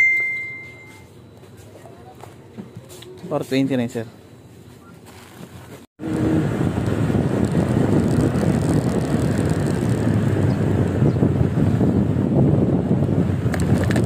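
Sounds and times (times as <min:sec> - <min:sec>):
motorcycle engine and road noise: 0:05.1 - 0:14.0
wind on microphone: 0:06.0 - 0:14.0.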